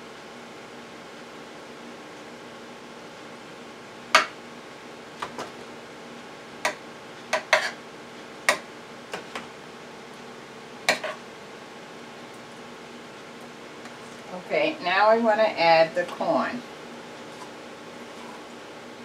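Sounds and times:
metal spoon scraping metal pan: 0:07.4 - 0:07.8.

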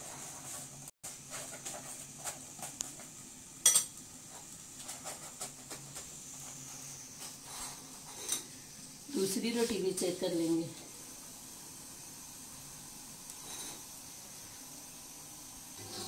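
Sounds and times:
spoon scraping ceramic plate: 0:07.4 - 0:08.5, 0:13.4 - 0:13.8.

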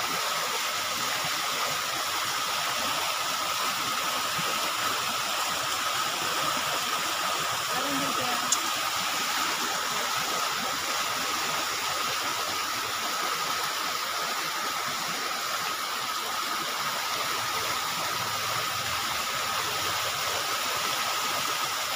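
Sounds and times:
floodwater rushing: 0:00.0 - 0:21.9
heavy rain: 0:17.2 - 0:20.5.

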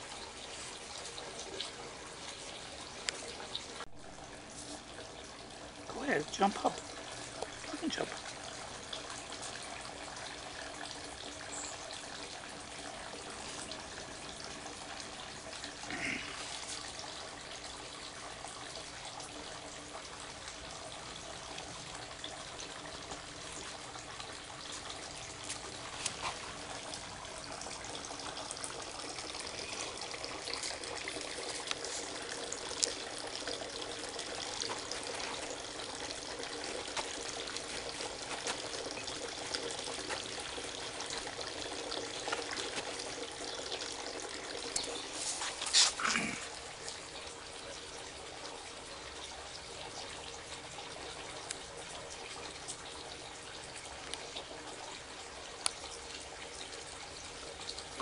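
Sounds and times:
water trickling: 0:00.0 - 0:58.0.

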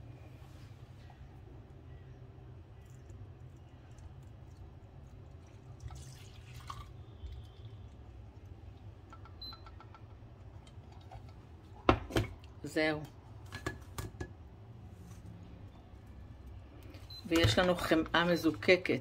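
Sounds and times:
steady low hum: 0:00.0 - 0:19.0
liquid trickling and dripping: 0:02.8 - 0:11.4.

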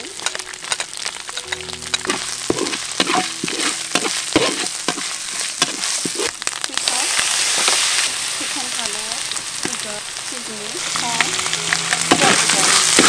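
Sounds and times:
spice paste sizzling in oil: 0:00.0 - 0:13.0
metal ladle scraping a wok: 0:00.2 - 0:08.3, 0:10.8 - 0:13.0.

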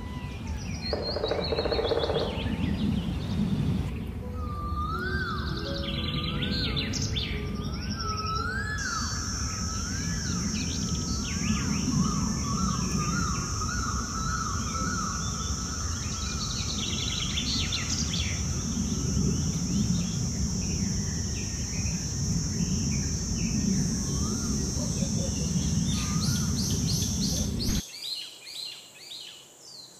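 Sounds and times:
low rumbling noise: 0:00.0 - 0:27.8
high-pitched hiss: 0:00.0 - 0:29.9
small birds chirping: 0:00.0 - 0:29.9
wavering bird whistle: 0:04.2 - 0:15.3.

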